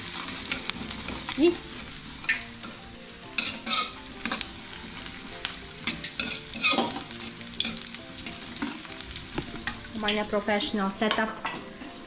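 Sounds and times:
onions sizzling in oil: 0.0s - 12.0s
metal spatula scraping wok: 2.2s - 5.1s, 5.8s - 9.0s.

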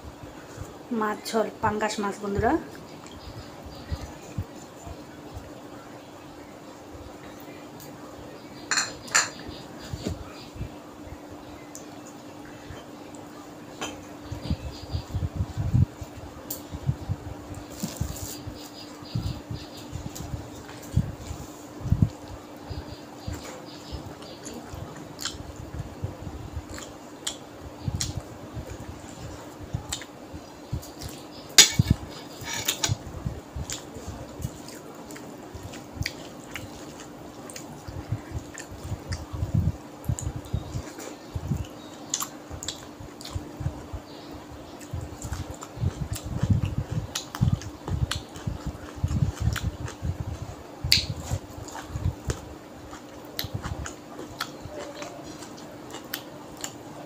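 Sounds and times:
steady low hum: 0.0s - 57.0s
chewing: 33.6s - 39.3s, 40.1s - 43.4s, 44.8s - 50.0s, 50.9s - 56.8s.

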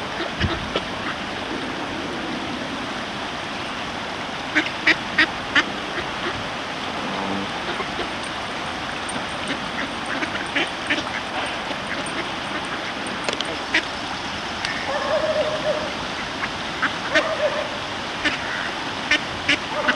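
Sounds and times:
background hiss: 0.9s - 19.7s
ducks quacking: 4.5s - 13.9s, 18.2s - 19.9s.

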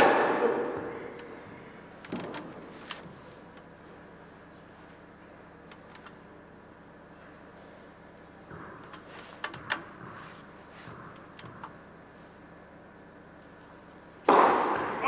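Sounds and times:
tennis racket hitting ball: 14.3s - 15.0s.

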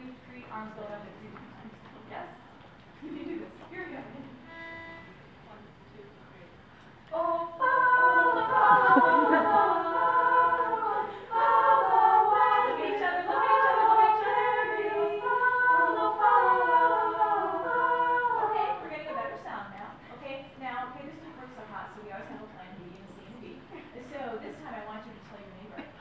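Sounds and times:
women's vocal ensemble singing: 7.1s - 20.3s.

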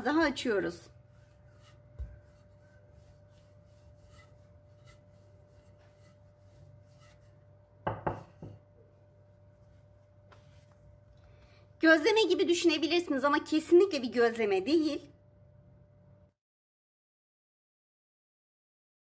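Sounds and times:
rolling pin rolling dough: 0.0s - 8.7s
faint steady hum: 0.0s - 12.4s.

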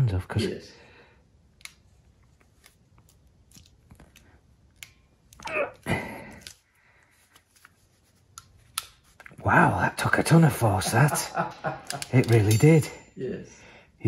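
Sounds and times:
person straining: 5.4s - 6.6s.

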